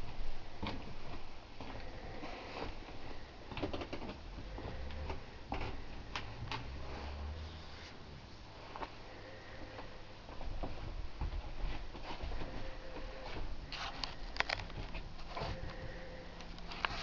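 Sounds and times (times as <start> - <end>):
camera handling rumble: 13.8 - 15.4.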